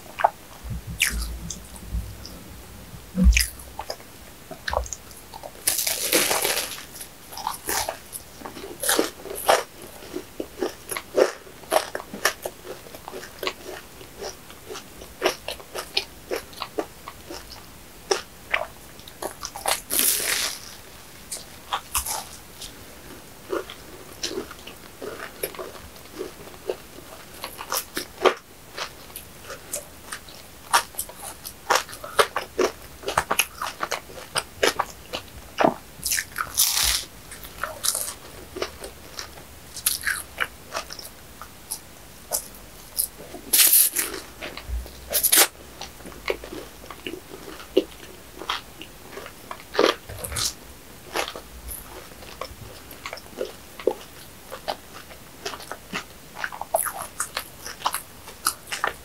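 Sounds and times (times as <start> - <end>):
soft chewing: 0.0 - 59.0
pastry crunching: 4.6 - 17.4, 29.5 - 41.1.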